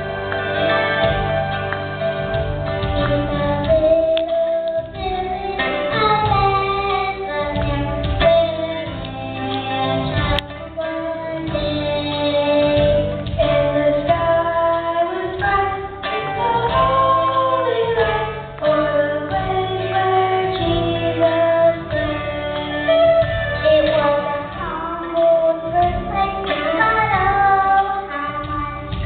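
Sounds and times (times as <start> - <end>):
instrumental accompaniment: 0.0 - 29.0
child singing into a microphone: 3.0 - 29.0
children's choir singing: 12.3 - 29.0.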